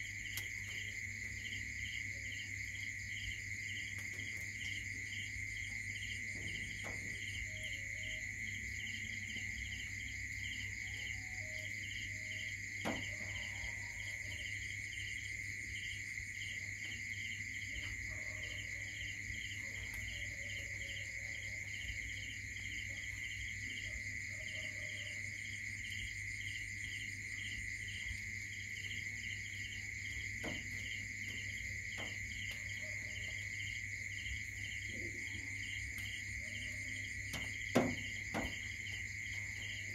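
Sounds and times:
night insects chirping: 0:00.0 - 0:39.9.

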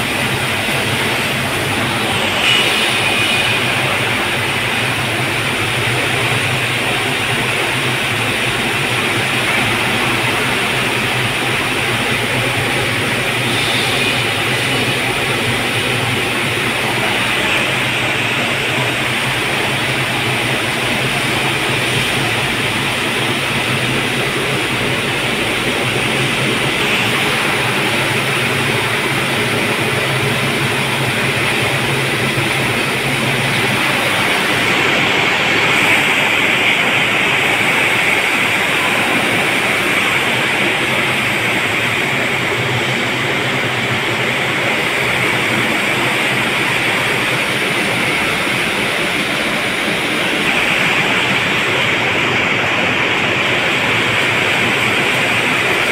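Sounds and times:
factory machinery din: 0:00.0 - 0:55.9.

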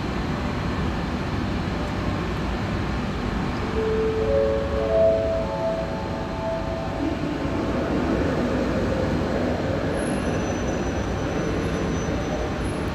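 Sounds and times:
rumbling train station noise: 0:00.0 - 0:12.9.

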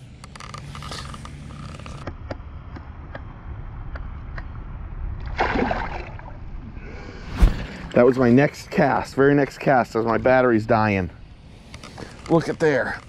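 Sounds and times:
low steady rumble: 0:00.0 - 0:13.0
fish splashing into water: 0:05.2 - 0:06.4.

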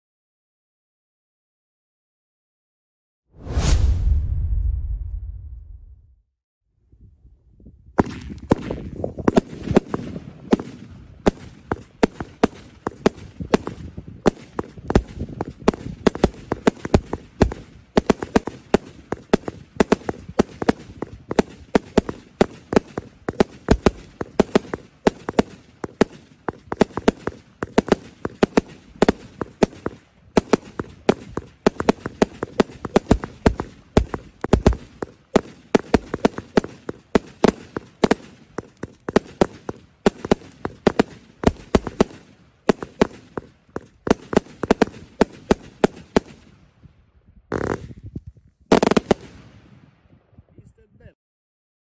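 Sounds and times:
fireworks popping and banging: 0:08.0 - 0:46.6, 0:47.5 - 0:49.6.

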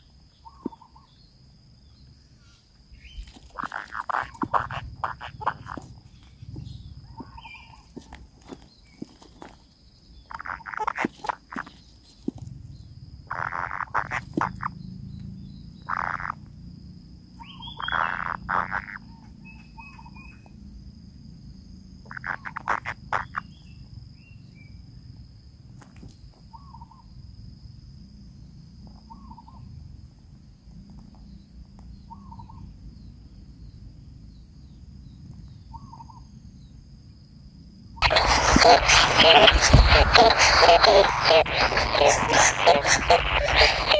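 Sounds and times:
nestlings calling: 0:00.0 - 0:01.3, 0:02.0 - 0:16.5, 0:17.4 - 0:20.4, 0:22.1 - 0:24.3, 0:38.0 - 0:43.9
high steady whine: 0:38.0 - 0:43.9.

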